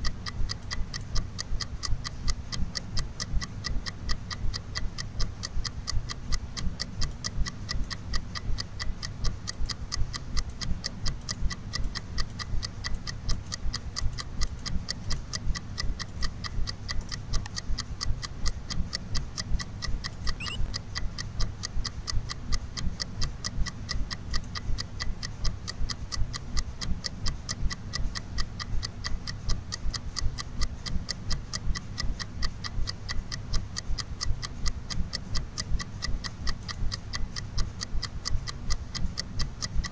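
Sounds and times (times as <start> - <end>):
low steady hum: 0.0 - 20.9
steady ticking: 0.0 - 39.9.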